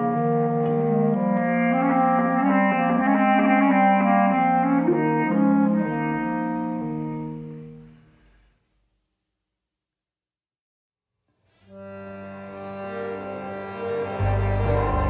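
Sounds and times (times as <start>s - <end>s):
bass clarinet low sustained notes: 0.0s - 8.2s, 11.7s - 15.0s
slow ambient instrumental music: 0.0s - 8.3s, 11.5s - 15.0s.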